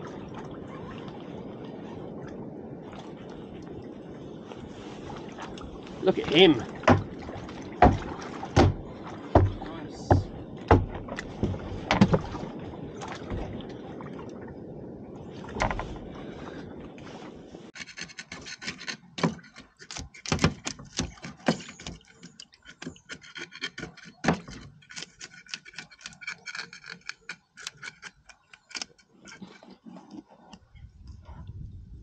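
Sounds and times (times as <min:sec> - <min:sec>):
water noise: 0:00.0 - 0:32.0
wind: 0:00.0 - 0:32.0
knock on boat: 0:06.6 - 0:12.4
scaler scraping fish scales: 0:17.8 - 0:20.3, 0:21.2 - 0:30.3.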